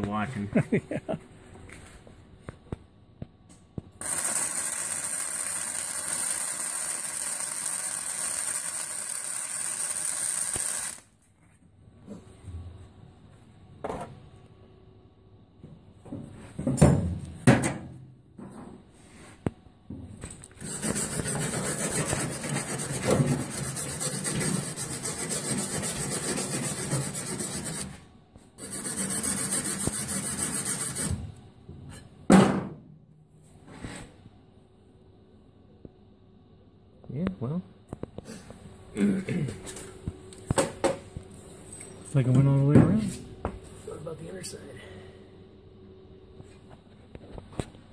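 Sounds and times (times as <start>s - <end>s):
welding arc crackling: 4.0s - 11.1s.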